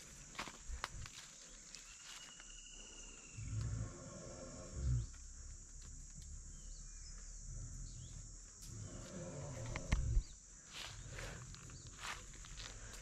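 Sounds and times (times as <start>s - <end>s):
elephant rumbling low: 3.0s - 10.4s.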